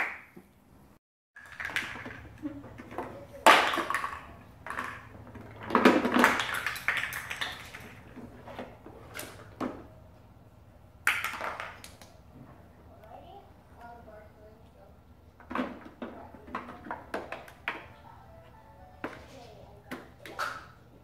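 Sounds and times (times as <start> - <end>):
plastic blocks clattering in a wagon: 1.4 - 8.4.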